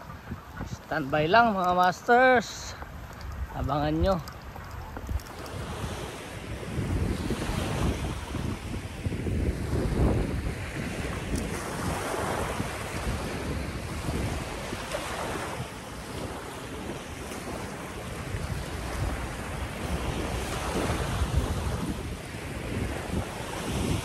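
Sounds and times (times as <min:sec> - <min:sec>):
small waves breaking on sand: 0:00.0 - 0:24.0
wind buffeting microphone: 0:00.0 - 0:24.0.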